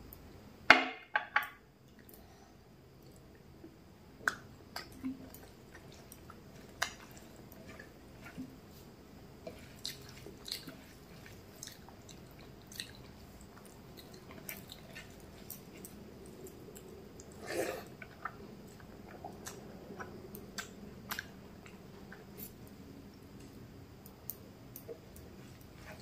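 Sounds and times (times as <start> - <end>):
chewing: 4.3 - 8.6, 9.4 - 22.8.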